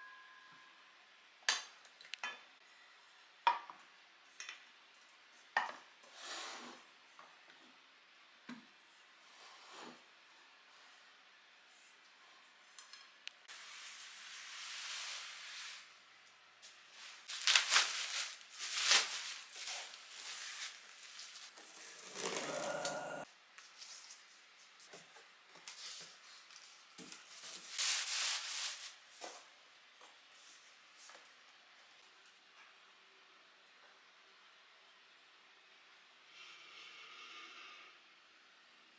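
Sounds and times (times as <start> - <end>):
scrape: 6.0 - 6.9, 9.2 - 10.1, 36.3 - 38.0
plastic wrap and tape tearing: 17.0 - 23.0.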